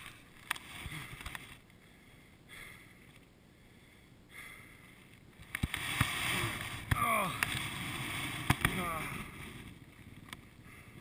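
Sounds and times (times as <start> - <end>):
heavy breathing: 0.8 - 5.2, 10.6 - 11.0.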